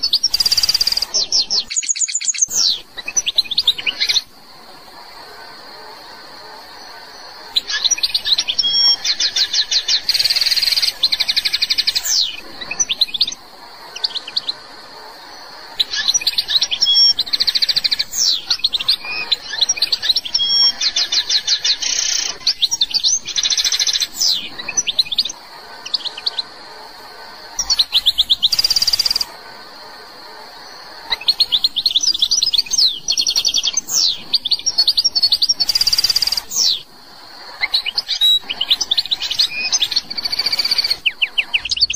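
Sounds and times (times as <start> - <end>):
goldfinch twittering and trilling: 0.0 - 4.2, 7.5 - 13.4, 15.8 - 26.5, 31.1 - 36.8.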